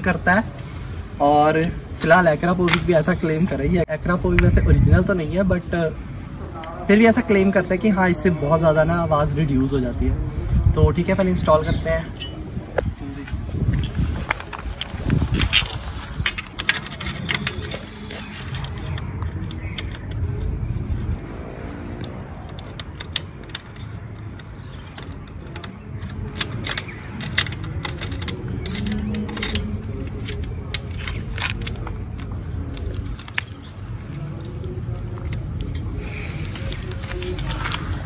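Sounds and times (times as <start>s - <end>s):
steady low rumble: 8.7s - 38.0s
metallic clicks and scrapes: 13.7s - 20.6s, 22.0s - 38.0s.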